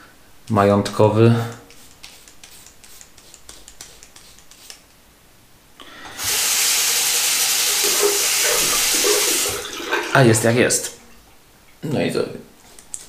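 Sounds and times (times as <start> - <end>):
tap water running into sink: 6.1 - 10.4.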